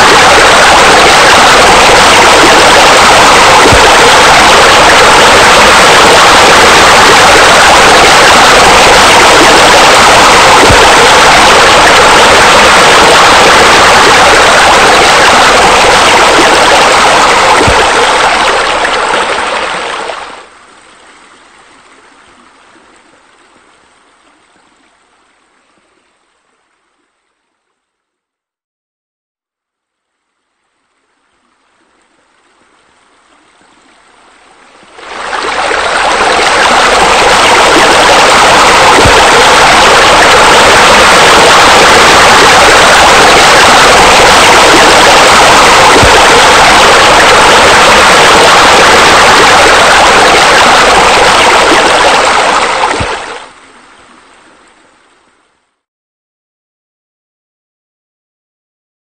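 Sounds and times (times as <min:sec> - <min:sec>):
splashing fountain water: 0:00.0 - 0:20.5, 0:33.9 - 0:53.8.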